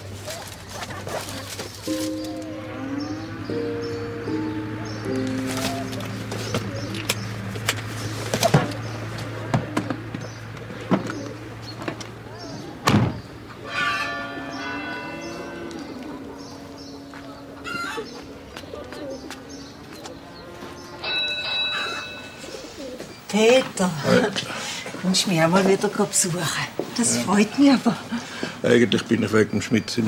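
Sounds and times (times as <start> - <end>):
small birds chirping: 0.0 - 13.6, 14.4 - 30.0
pigeons cooing: 0.0 - 28.7
thud: 12.9 - 13.2.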